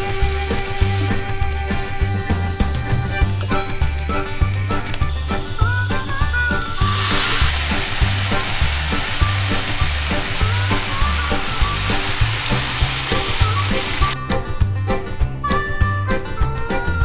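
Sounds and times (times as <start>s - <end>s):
rice sizzling in a pan: 0.0s - 14.2s
liquid pouring: 6.7s - 14.2s.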